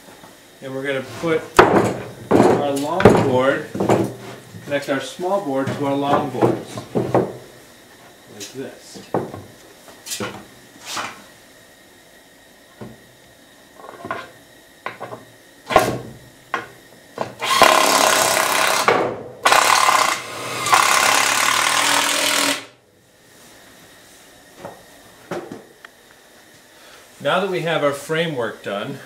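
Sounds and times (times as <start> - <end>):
wooden boards knocking: 1.6 - 4.1, 6.1 - 7.4
power drill driving screw: 17.4 - 22.7.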